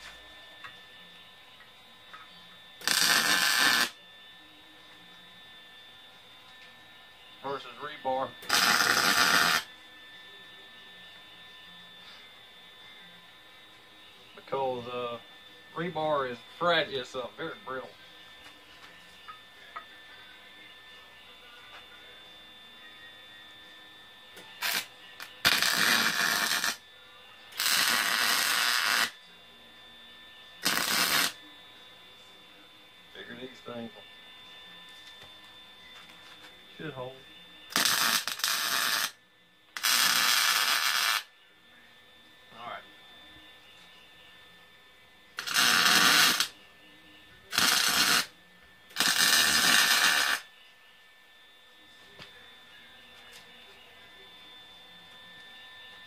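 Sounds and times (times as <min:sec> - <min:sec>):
welding arc crackling: 0:02.8 - 0:04.0, 0:08.4 - 0:09.7, 0:24.6 - 0:26.8, 0:27.5 - 0:29.2, 0:30.6 - 0:31.4, 0:37.7 - 0:39.2, 0:39.8 - 0:41.3, 0:45.4 - 0:46.5, 0:47.5 - 0:48.3, 0:48.9 - 0:50.5.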